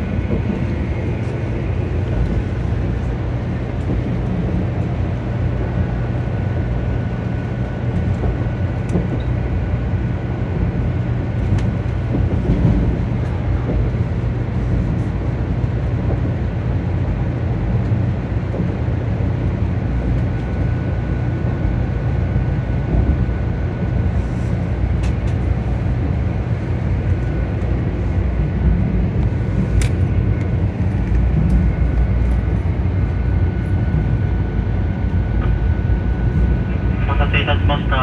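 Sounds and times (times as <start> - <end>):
train rumbling on track: 0.0 - 38.0.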